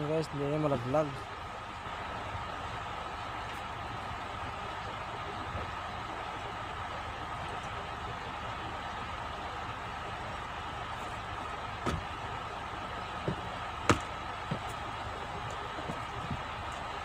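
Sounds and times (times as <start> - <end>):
mechanical hum: 0.0 - 17.0
sharp knocks: 11.8 - 12.2, 13.2 - 14.8.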